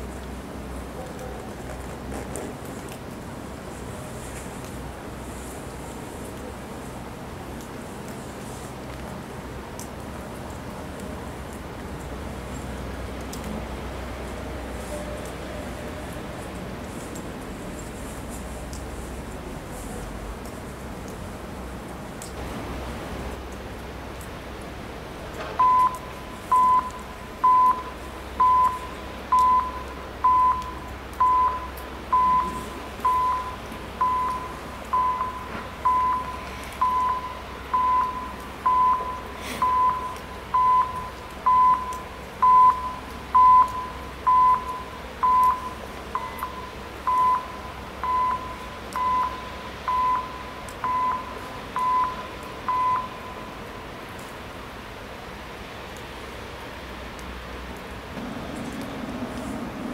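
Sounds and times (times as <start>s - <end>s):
level crossing warning beeps: 25.6s - 53.9s.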